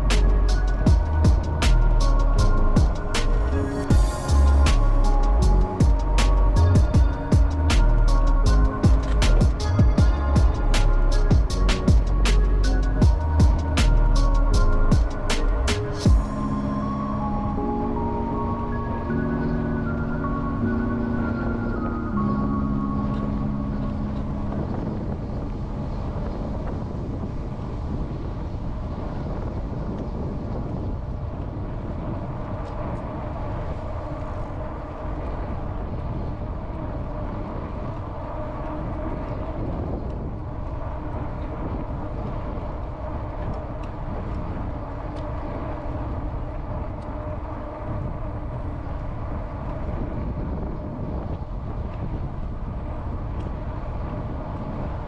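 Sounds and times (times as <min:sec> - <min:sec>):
bicycle tyres rolling on path: 0:00.0 - 0:17.3, 0:17.9 - 0:55.0
wind rushing over microphone: 0:00.0 - 0:55.0.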